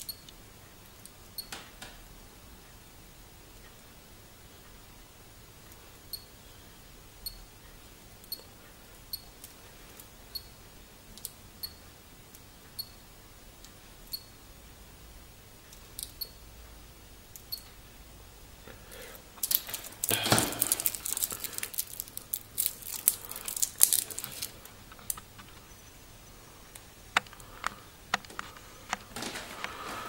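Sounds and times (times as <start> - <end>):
plastic film crinkling: 19.4 - 25.6.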